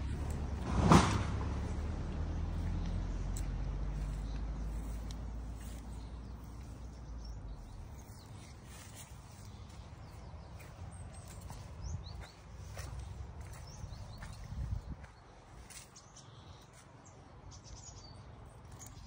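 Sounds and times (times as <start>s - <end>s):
wind rumble on microphone: 10.5s - 15.2s.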